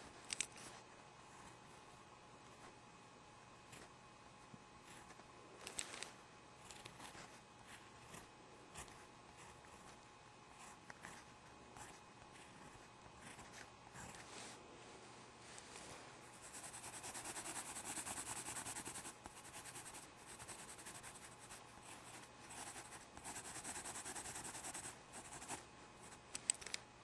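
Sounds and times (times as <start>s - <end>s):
pen scratching on paper: 16.4s - 25.6s.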